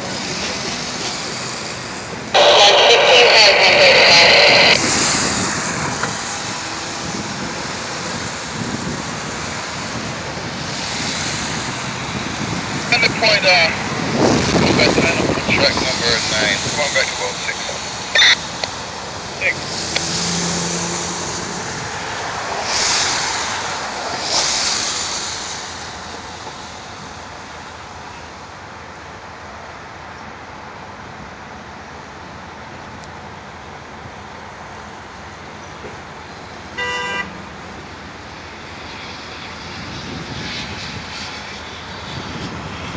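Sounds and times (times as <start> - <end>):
train wheels on rails: 0.0 - 2.3
train coaches rolling on track: 0.0 - 8.6
wind on microphone: 4.5 - 20.0, 39.5 - 42.9.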